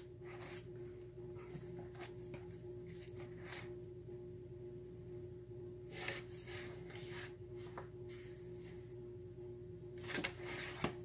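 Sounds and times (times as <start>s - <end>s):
faint steady hum: 0.0s - 11.0s
sketchbook pages flipping: 0.2s - 3.7s, 10.0s - 11.0s.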